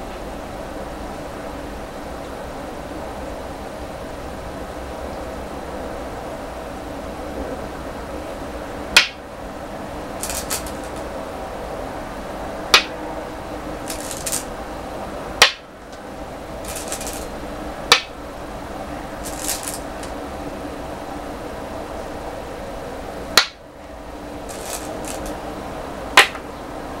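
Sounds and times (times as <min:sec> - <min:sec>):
stones clicking on wooden board: 0:10.2 - 0:11.0, 0:13.9 - 0:14.5, 0:16.7 - 0:17.3, 0:19.2 - 0:20.1, 0:24.5 - 0:25.4
stones rattling in bowl: 0:10.2 - 0:11.0, 0:13.9 - 0:14.5, 0:16.7 - 0:17.3, 0:19.2 - 0:20.1, 0:24.5 - 0:25.4.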